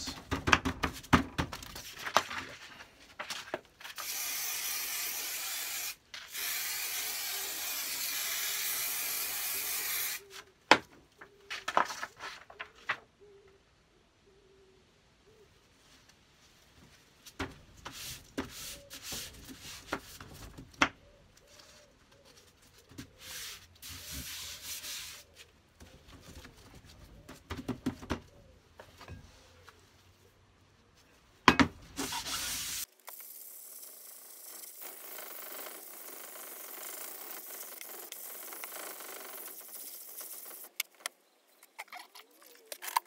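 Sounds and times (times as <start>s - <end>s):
abrasive paper rustling and crackling: 1.4s - 4.0s, 11.2s - 13.1s.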